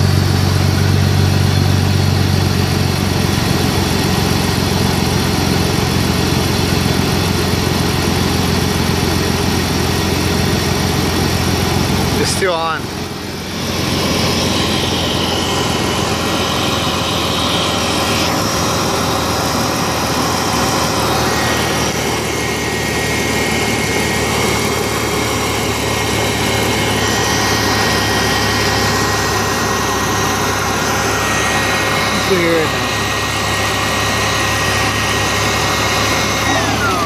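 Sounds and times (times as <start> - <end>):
car engine idling: 0.0 - 37.0
air pump droning: 10.0 - 37.0.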